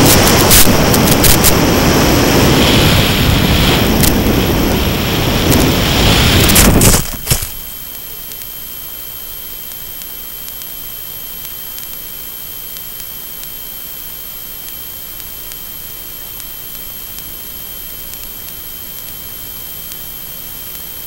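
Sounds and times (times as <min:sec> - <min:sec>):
static hiss: 0:00.0 - 0:21.0
faint ticks: 0:07.9 - 0:21.0.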